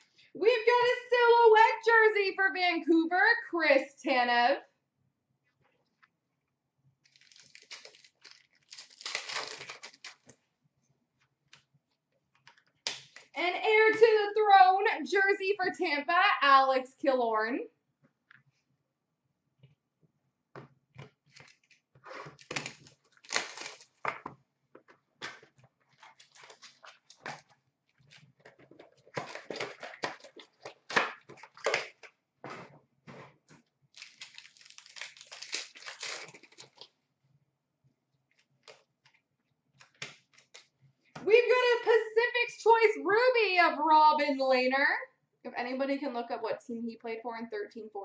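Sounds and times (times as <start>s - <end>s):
wrappers crinkling and rustling: 7.0s - 10.4s, 21.2s - 24.2s, 25.3s - 32.1s, 33.8s - 37.0s.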